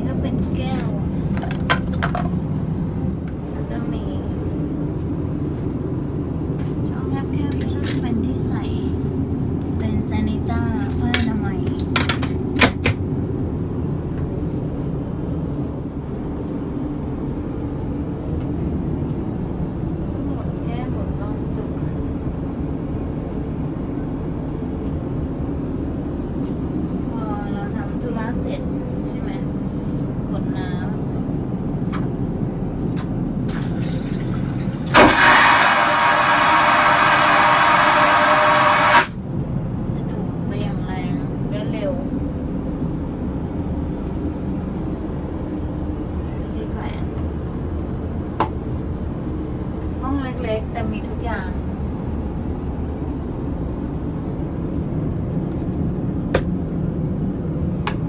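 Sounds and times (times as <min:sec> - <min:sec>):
airliner cabin rumble: 0:00.0 - 0:58.0
vacuum toilet flushing: 0:33.5 - 0:39.2.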